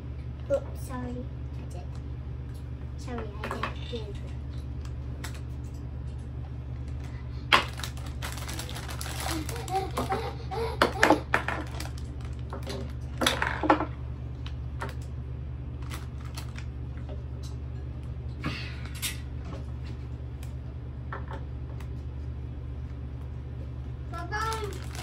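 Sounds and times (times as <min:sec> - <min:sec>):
steady low hum: 0:00.0 - 0:25.0
plastic toy pieces clattering: 0:07.6 - 0:10.2, 0:11.4 - 0:13.4, 0:24.4 - 0:25.0.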